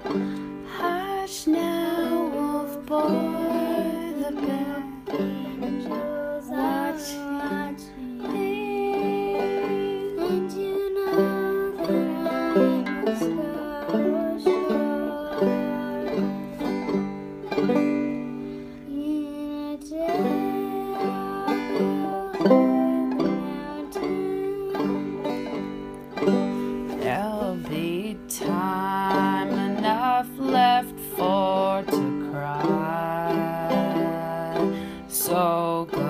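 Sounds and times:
banjo melody: 0.0s - 36.0s.

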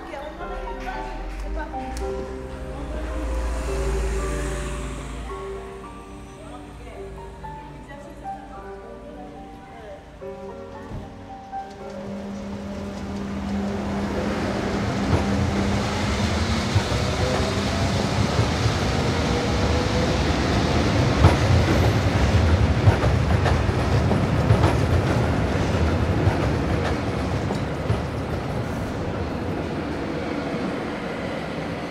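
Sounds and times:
train rumbling on tracks: 0.0s - 31.9s
faint rising whine: 2.0s - 7.9s.

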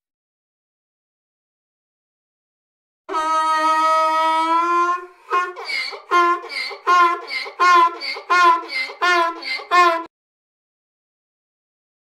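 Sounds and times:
donkey braying: 3.1s - 10.1s.

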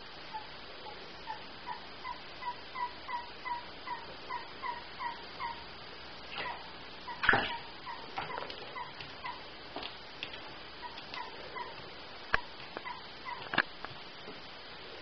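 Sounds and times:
squeaky owl calls: 1.2s - 5.7s, 6.3s - 9.5s, 10.8s - 11.8s, 12.8s - 13.5s.

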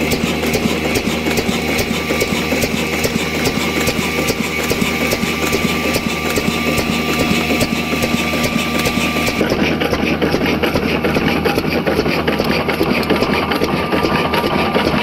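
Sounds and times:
diesel engine running: 0.0s - 15.0s
rapid valve clicks: 0.0s - 15.0s.

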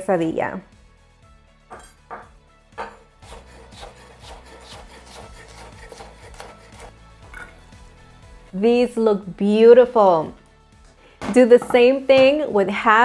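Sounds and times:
soft background music: 0.0s - 13.0s
knife cutting on wooden board: 2.8s - 7.5s.

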